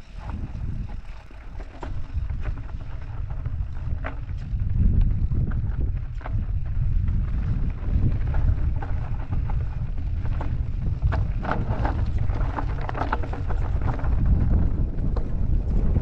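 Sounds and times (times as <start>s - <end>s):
bike clicks and rattles: 0.0s - 16.0s
wind buffeting microphone: 0.0s - 16.0s.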